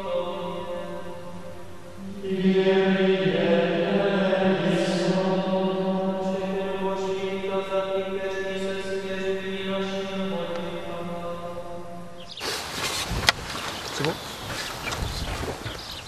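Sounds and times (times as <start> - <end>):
men chanting in unison: 0.0 - 12.3.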